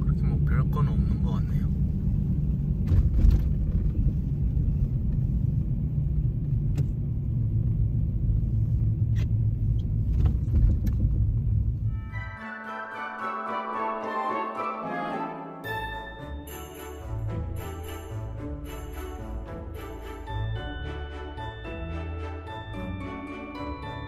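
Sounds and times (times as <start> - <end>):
car driving on snow: 0.0 - 11.9
music: 11.9 - 24.0.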